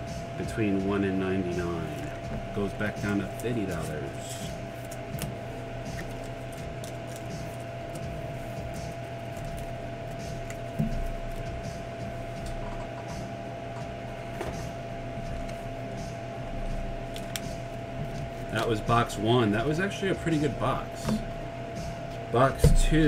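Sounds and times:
electrical hum: 0.0s - 23.0s
cards clicking and rustling: 2.8s - 11.4s, 17.0s - 17.8s.

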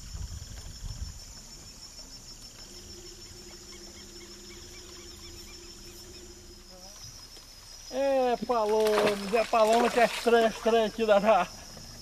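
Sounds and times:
high insect drone: 0.0s - 12.0s
faint low hum: 1.0s - 7.6s.

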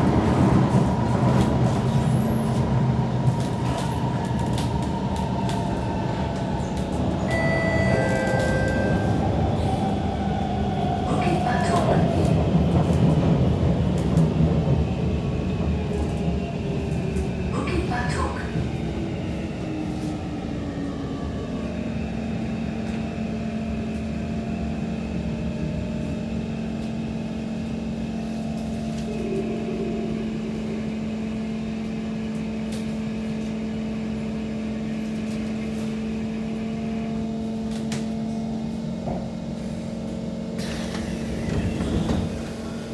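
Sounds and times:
train rumble: 0.0s - 42.9s.

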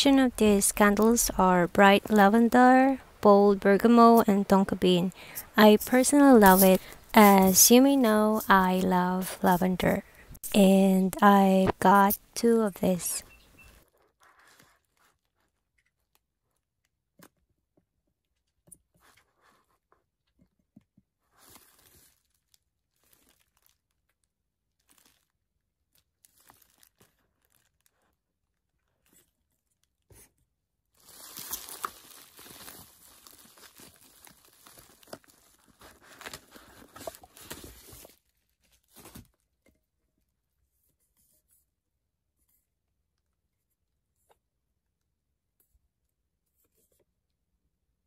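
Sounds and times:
plastic tearing: 21.4s - 25.4s, 31.0s - 39.3s
plastic wrapping crinkling: 21.4s - 29.0s, 31.0s - 39.1s.

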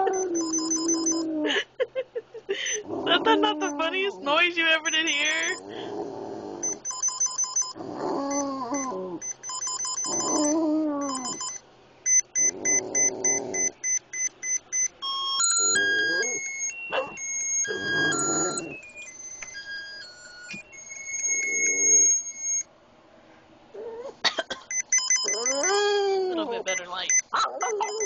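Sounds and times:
dog howling: 0.0s - 1.5s, 15.8s - 18.8s, 25.3s - 28.0s
electronic device rapid beeps: 0.2s - 1.2s, 4.8s - 5.6s, 6.6s - 22.7s, 24.7s - 26.0s, 26.7s - 28.0s
electronic tune of stepped tones: 9.2s - 22.7s, 24.7s - 25.9s, 26.7s - 28.0s.

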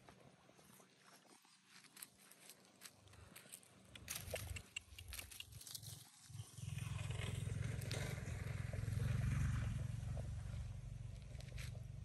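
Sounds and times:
footsteps crunching on dry leaves: 0.6s - 6.3s
low rumble: 6.3s - 12.0s.

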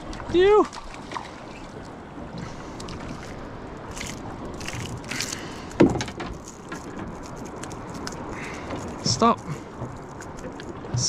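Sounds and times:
water around a boat: 0.0s - 11.0s
wind: 0.0s - 11.0s
rustles and clicks: 3.0s - 11.0s.

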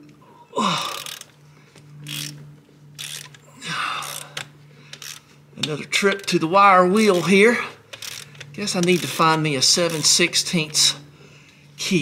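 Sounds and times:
steady low hum: 0.0s - 12.0s
ratchet wrench clicking: 0.9s - 1.3s, 2.0s - 2.4s, 3.0s - 3.4s, 4.0s - 6.4s, 7.0s - 10.8s.

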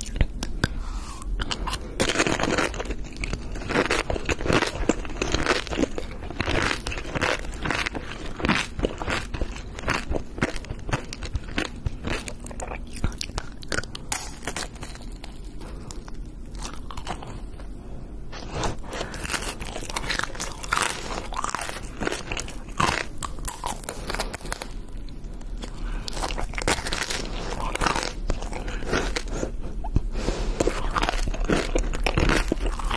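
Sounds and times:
crunching hard candy: 0.0s - 17.6s, 18.5s - 32.9s.

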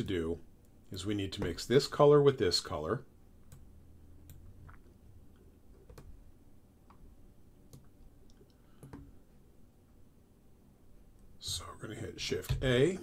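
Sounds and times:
low room hum: 0.0s - 13.0s
computer mouse clicks: 7.7s - 9.1s.

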